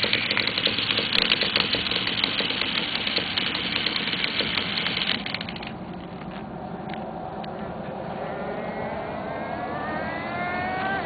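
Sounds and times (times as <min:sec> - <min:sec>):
small nitro engine buzzing: 0:00.0 - 0:05.8, 0:08.1 - 0:11.0.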